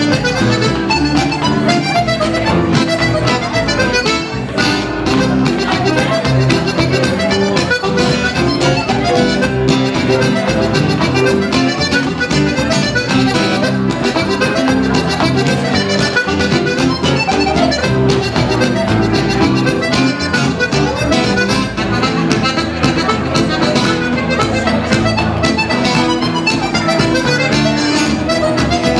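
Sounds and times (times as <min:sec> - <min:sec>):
accordion folk tune: 0:00.0 - 0:28.9
acoustic guitar rhythm: 0:00.0 - 0:28.9
upright bass: 0:00.0 - 0:28.9.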